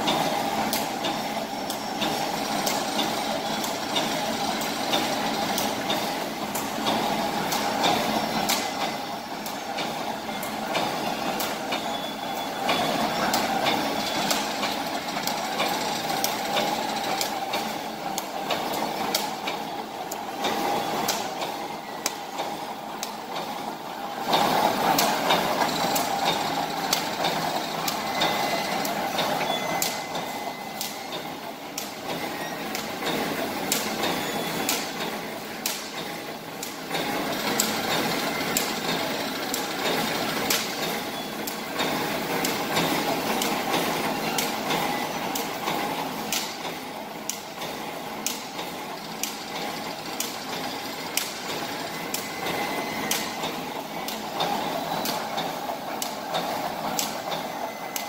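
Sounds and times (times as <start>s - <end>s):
industrial machine hum: 0.0s - 58.0s
sharp machine clacks: 0.0s - 58.0s.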